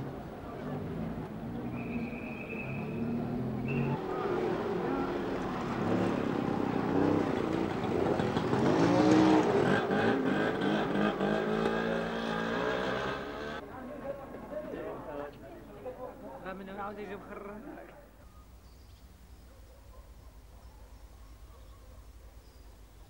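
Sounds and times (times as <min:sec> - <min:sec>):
people's voices: 0:00.0 - 0:08.5, 0:13.5 - 0:18.6
car engines passing: 0:00.0 - 0:16.4.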